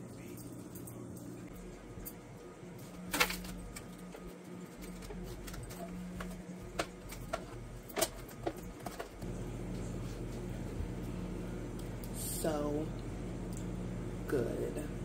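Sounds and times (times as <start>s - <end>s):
steady low hum: 0.0s - 15.0s
aluminium foil crinkling: 2.8s - 9.2s.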